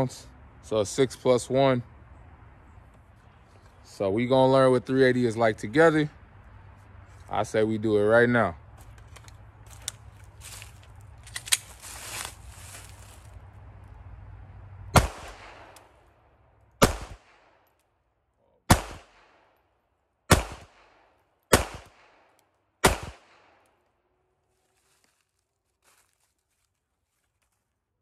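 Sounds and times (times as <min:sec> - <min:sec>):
pistol shots echoing: 0:15.0 - 0:15.8, 0:16.8 - 0:17.5, 0:18.7 - 0:19.4, 0:20.3 - 0:23.6.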